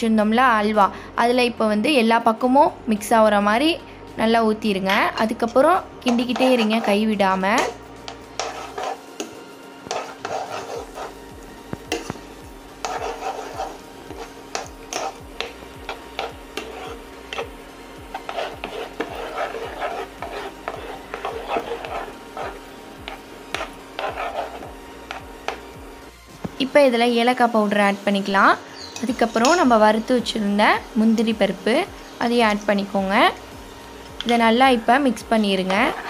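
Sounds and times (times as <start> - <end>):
spoon scraping a pan: 4.9 - 25.7, 28.8 - 29.7, 35.4 - 36.0
spoon tapping a pan: 11.7 - 12.2, 14.5 - 16.7.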